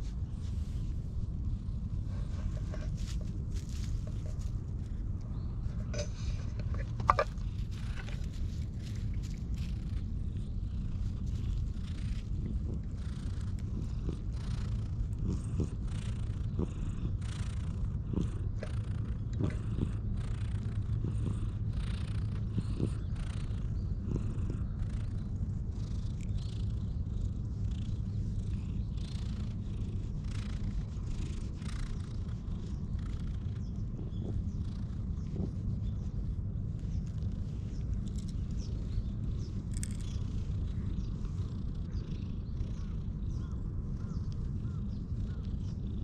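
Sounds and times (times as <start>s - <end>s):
hand rustling over fur: 0.0s - 14.2s
cat purring: 0.0s - 46.0s.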